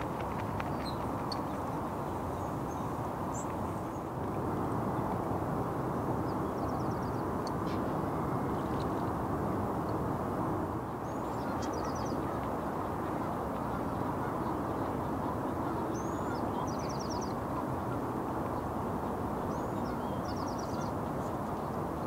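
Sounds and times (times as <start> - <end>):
heavy freeway traffic rumble: 0.0 - 16.4.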